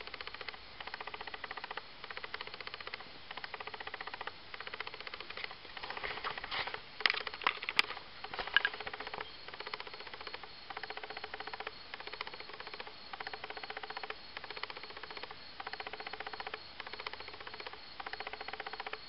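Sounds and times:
sharp clicks: 0.0s - 19.0s.

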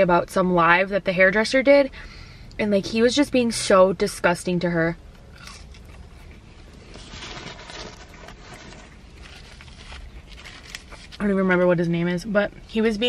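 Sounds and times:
car cabin hum: 2.6s - 4.6s
person chewing food: 5.2s - 11.2s.

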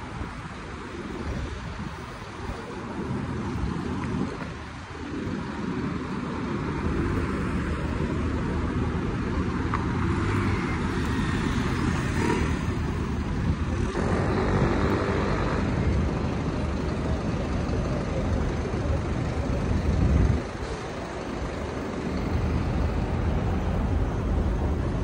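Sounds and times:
street traffic rumble: 0.0s - 25.0s.

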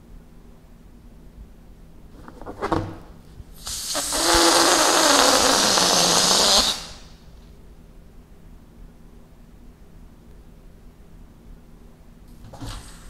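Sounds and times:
air hissing from balloon: 3.5s - 7.3s, 12.5s - 13.0s
balloon squeal: 3.6s - 7.2s.

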